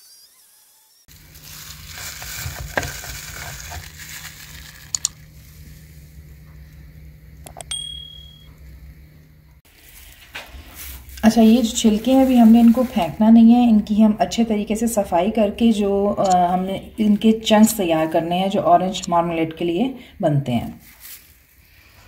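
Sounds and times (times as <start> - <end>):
electric juicer humming: 0.0 - 7.5
bell-like ding: 7.6 - 8.6.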